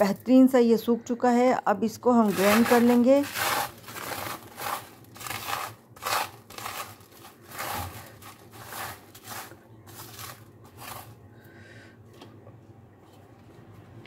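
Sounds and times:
dry garlic chips rustling: 0:02.2 - 0:11.2.

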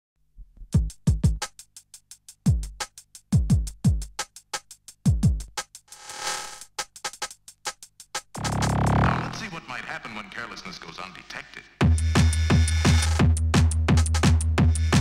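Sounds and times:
kick drums: 0:00.6 - 0:01.5, 0:02.5 - 0:04.2, 0:05.0 - 0:05.6
low bass drone: 0:08.4 - 0:09.5.

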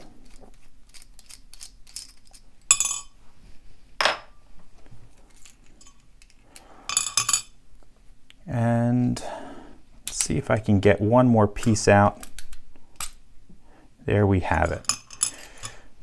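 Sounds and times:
lock parts clinking on metal tray: 0:00.0 - 0:03.1, 0:05.3 - 0:07.6, 0:14.6 - 0:15.8.

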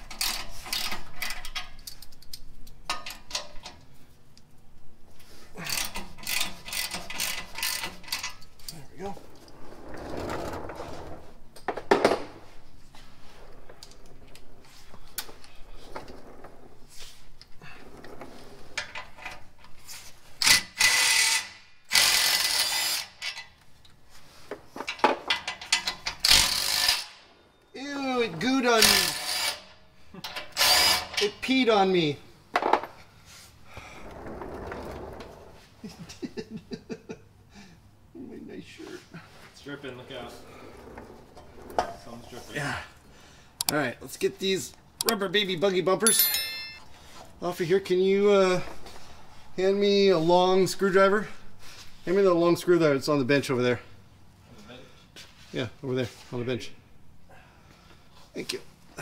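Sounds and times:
creeper rolling on concrete: 0:06.2 - 0:19.6, 0:33.7 - 0:36.2, 0:39.6 - 0:43.1
metal hand tools clinking: 0:46.0 - 0:46.8.

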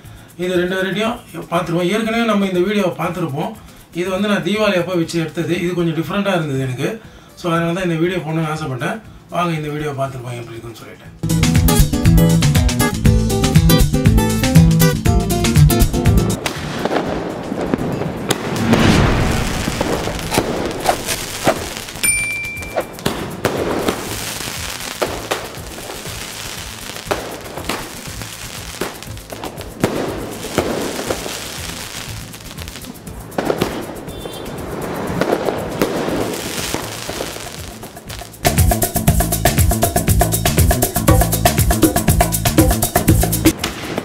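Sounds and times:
firework shells thumping out: 0:16.4 - 0:38.4
firework bursts crackling: 0:16.4 - 0:39.0, 0:43.5 - 0:44.0.

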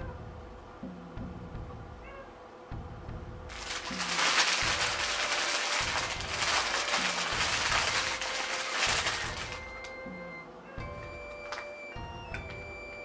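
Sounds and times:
background music with bass line: 0:00.0 - 0:02.1, 0:02.7 - 0:13.0
packaging crinkling and rustling: 0:03.5 - 0:10.0.

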